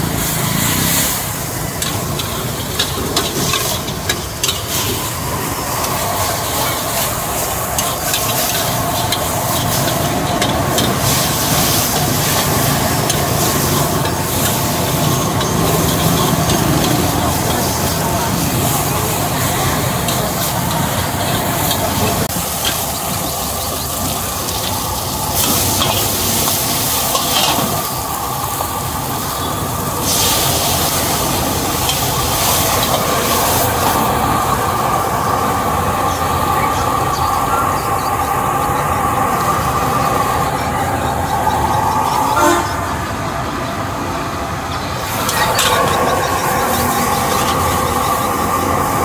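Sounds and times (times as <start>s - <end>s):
gas burner noise: 0.0s - 49.0s
greens sizzling: 0.0s - 49.0s
metal spatula scraping a wok: 0.8s - 18.0s.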